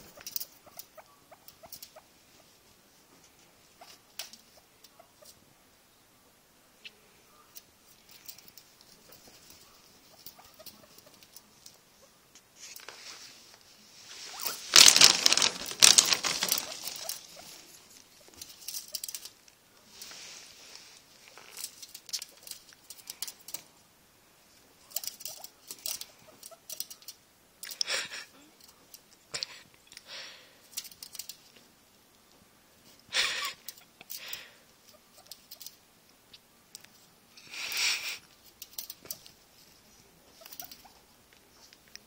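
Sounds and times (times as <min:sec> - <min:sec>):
guinea pigs rustling in bedding: 0:00.0 - 0:05.4, 0:07.5 - 0:27.2, 0:36.9 - 0:42.0.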